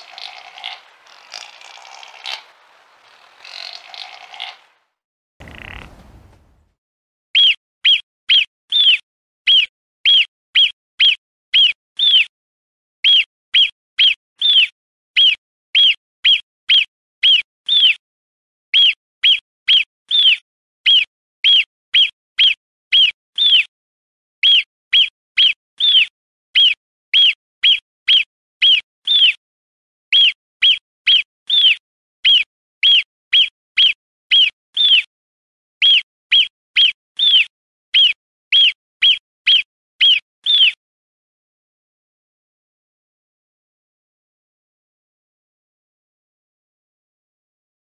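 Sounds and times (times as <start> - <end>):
marmot whistled alarm calls: 5.4 - 6.5, 7.4 - 12.3, 13.0 - 18.0, 18.8 - 23.7, 30.1 - 35.1, 35.8 - 40.8.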